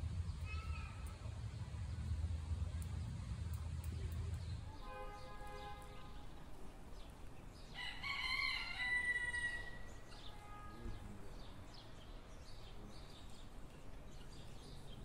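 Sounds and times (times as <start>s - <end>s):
rooster crowing: 7.8s - 9.9s.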